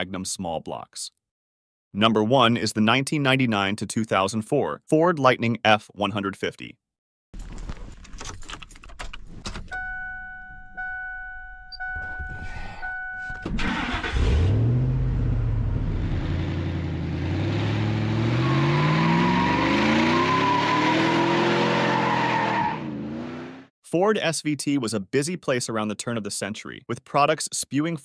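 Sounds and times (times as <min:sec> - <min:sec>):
two-tone chime: 0:09.7 - 0:13.4
truck engine starting and revving: 0:12.3 - 0:23.7
tires spinning: 0:13.6 - 0:23.6.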